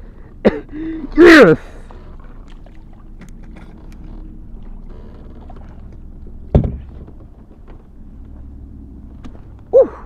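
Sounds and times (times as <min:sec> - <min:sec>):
loud thump on hull: 0:06.5 - 0:07.4
handling knocks in kayak: 0:06.5 - 0:07.8.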